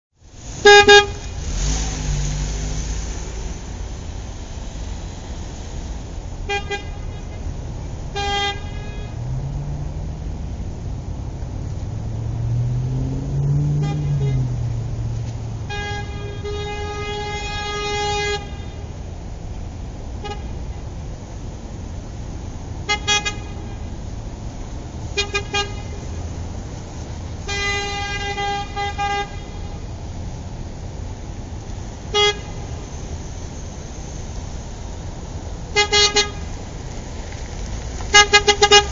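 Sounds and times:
low traffic rumble: 0.1 - 38.9
car horn honking: 0.6 - 1.8, 6.4 - 7.5, 8.1 - 9.4, 13.6 - 14.9, 15.6 - 18.9, 20.2 - 20.6, 22.8 - 23.8, 25.1 - 26.1, 27.4 - 29.9, 32.1 - 32.8, 35.7 - 36.5, 38.1 - 38.9.

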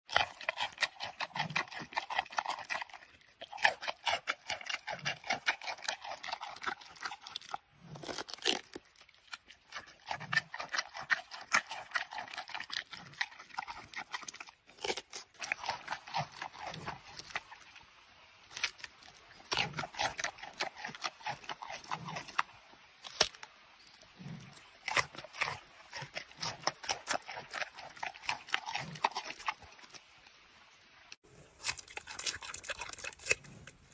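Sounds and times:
panda crunching squash: 0.1 - 17.8, 18.5 - 22.4, 24.1 - 30.0, 31.3 - 33.9.

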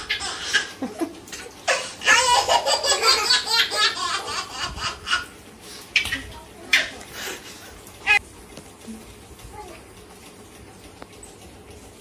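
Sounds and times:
young children laughing: 0.0 - 5.3.

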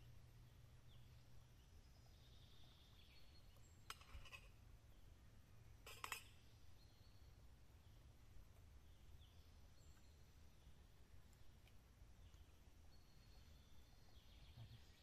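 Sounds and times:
cutlery clinking on plates: 5.9 - 6.3.

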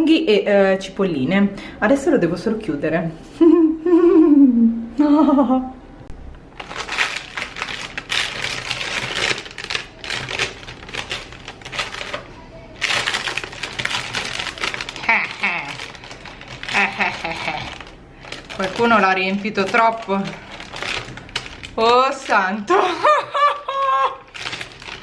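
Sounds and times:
woman speaking: 0.0 - 3.2, 15.0 - 15.9, 16.7 - 17.8, 18.5 - 20.5, 21.8 - 23.1
crackly wrapping sheet rustling: 6.5 - 22.8, 23.5 - 25.0.

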